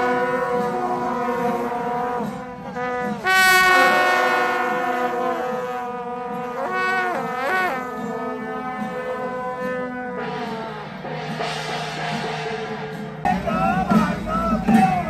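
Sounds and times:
wind instruments playing: 0.0s - 11.5s.

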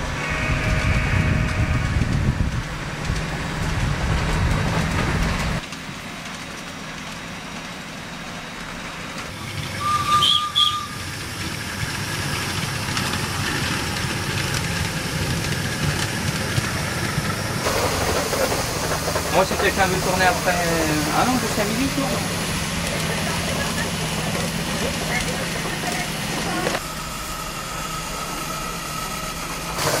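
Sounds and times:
miniature train rumbling: 0.0s - 30.0s
train whistle: 0.1s - 2.1s, 9.7s - 11.0s.

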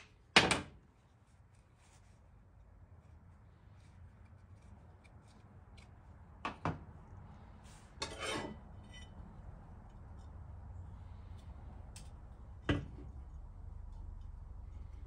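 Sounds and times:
metallic scrape and rattle: 7.7s - 9.2s.

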